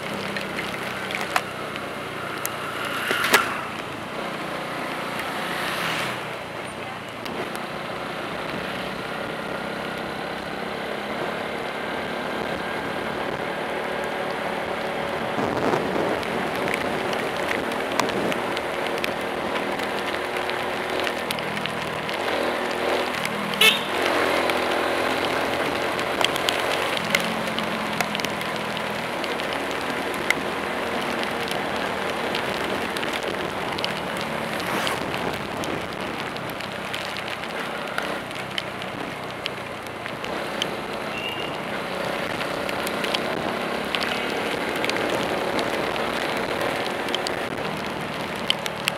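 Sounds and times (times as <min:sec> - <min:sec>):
rain: 0:00.0 - 0:48.9
tyres hissing on wet road: 0:00.0 - 0:48.9
light ticks: 0:25.2 - 0:34.5, 0:35.6 - 0:48.9.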